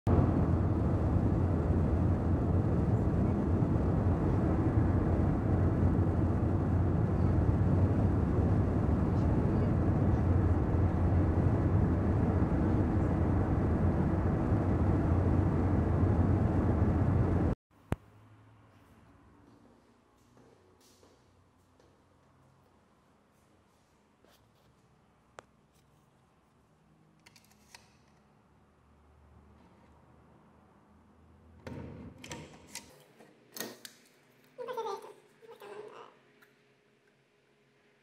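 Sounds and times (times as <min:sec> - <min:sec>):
car road and engine rumble: 0:00.1 - 0:17.6.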